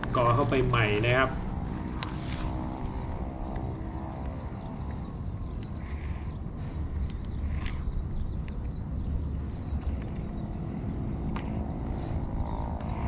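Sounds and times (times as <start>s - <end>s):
constant low rumble: 0.0s - 13.0s
high-pitched insect drone: 0.0s - 13.0s
faint clicks: 2.0s - 6.4s, 7.0s - 8.8s.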